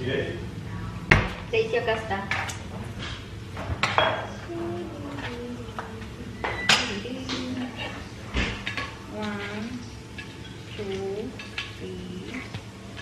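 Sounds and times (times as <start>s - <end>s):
plates and utensils clinking: 2.3s - 4.4s, 5.0s - 13.0s.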